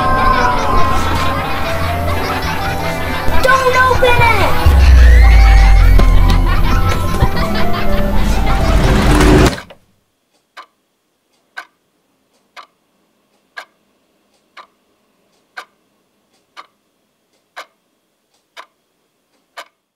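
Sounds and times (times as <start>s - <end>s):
music: 0.0s - 9.7s
clock ticking: 1.2s - 9.5s, 10.4s - 10.8s, 11.4s - 11.8s, 12.4s - 12.8s, 13.4s - 16.8s, 17.4s - 17.8s, 18.4s - 18.8s, 19.4s - 19.8s.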